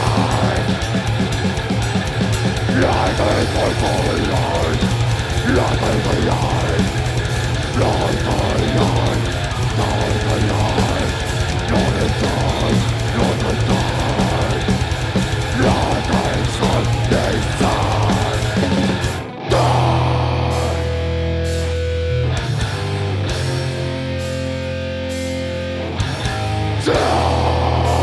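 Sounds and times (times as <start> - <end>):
fast drum strokes: 0.0 - 19.7
death metal band playing: 0.0 - 28.0.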